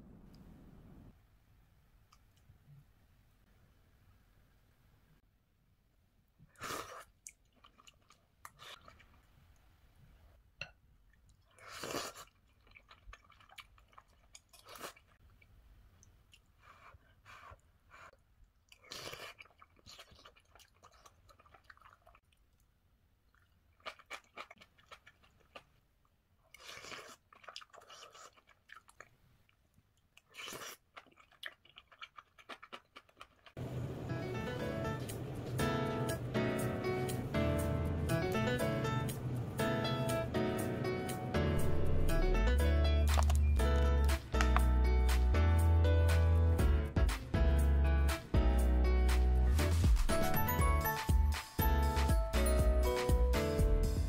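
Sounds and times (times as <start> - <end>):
person chewing: 6.5 - 9.2, 11.1 - 22.7, 23.3 - 25.8, 26.4 - 33.6, 43.0 - 44.8.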